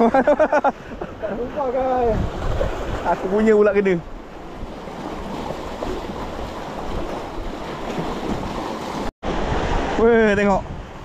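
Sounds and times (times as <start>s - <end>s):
sea surf washing: 0.0s - 11.0s.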